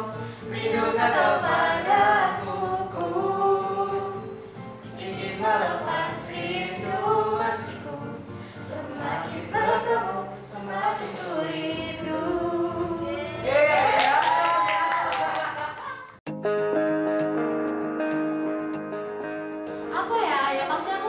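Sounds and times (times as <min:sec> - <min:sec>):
woman singing: 0:00.0 - 0:04.3, 0:05.0 - 0:13.4.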